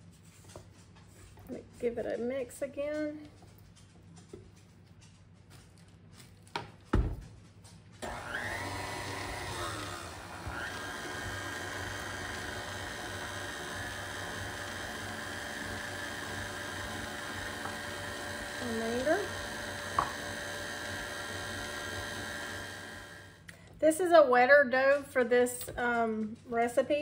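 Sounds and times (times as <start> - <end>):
stand mixer motor running: 8.0 - 23.4.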